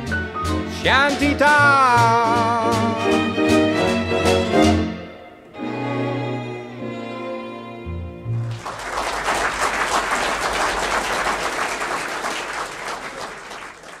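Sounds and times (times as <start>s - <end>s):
audience applause: 8.4s - 14.0s.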